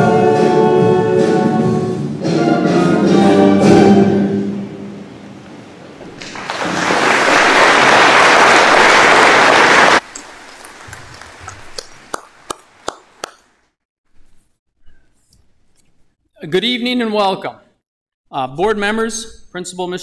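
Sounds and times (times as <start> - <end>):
audience applause in a hall: 6.0 - 13.6.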